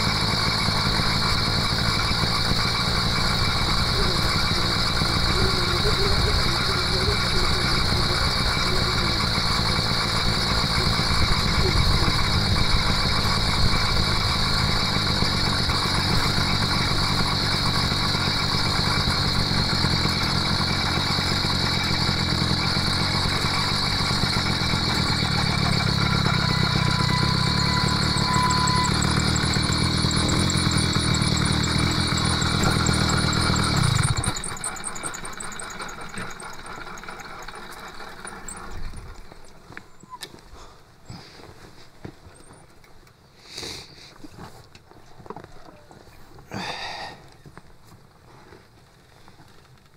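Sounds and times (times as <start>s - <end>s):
rolling rattling noise with knocks: 0.0s - 39.9s
two-stroke bicycle engine running: 0.0s - 41.4s.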